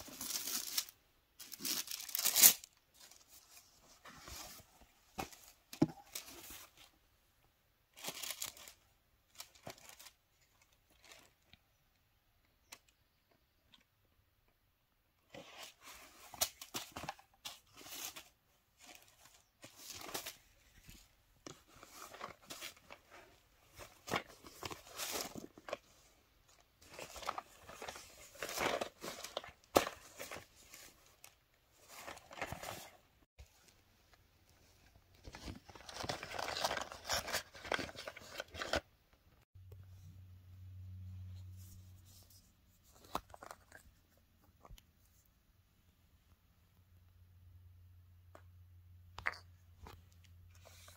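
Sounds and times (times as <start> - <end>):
paper packaging rustling: 0.0 - 6.9, 8.0 - 11.4, 15.3 - 33.6, 35.1 - 38.8.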